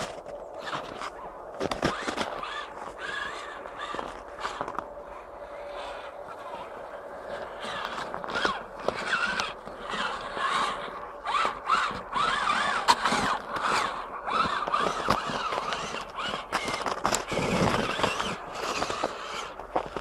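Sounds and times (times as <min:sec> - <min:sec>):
electric motor whining: 0:00.0 - 0:20.0
tyres churning through snow: 0:00.0 - 0:20.0.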